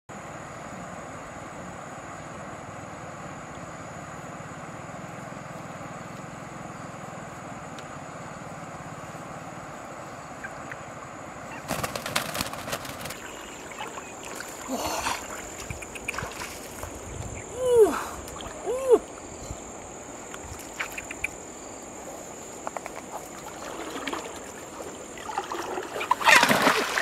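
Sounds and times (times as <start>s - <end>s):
background hiss with high whine: 0.1s - 27.0s
chicken flapping wings: 11.5s - 17.0s, 26.0s - 27.0s.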